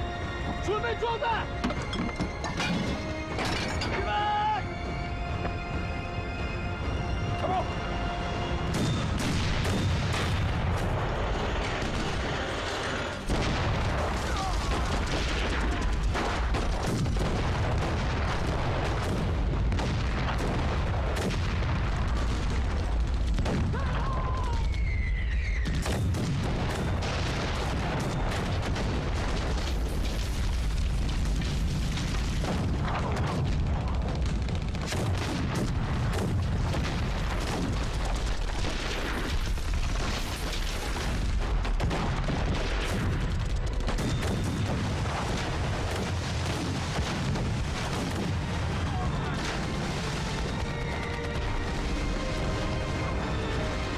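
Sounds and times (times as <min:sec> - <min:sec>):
artillery gun blasts and explosions: 0:08.6 - 0:53.9.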